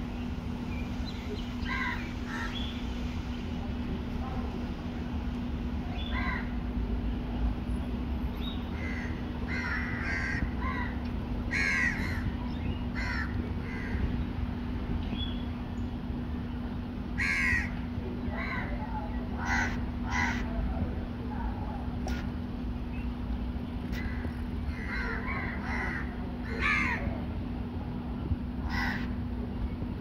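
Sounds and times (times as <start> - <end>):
crows cawing: 1.6 - 2.7, 6.1 - 6.6, 8.8 - 12.4, 13.0 - 14.1, 17.2 - 18.8, 19.4 - 20.5, 23.9 - 27.1, 28.6 - 29.2.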